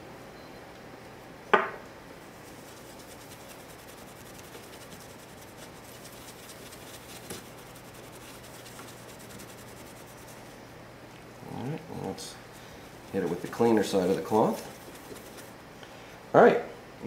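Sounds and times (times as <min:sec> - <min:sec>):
cloth rubbing on metal: 0:02.4 - 0:10.5, 0:13.0 - 0:15.6.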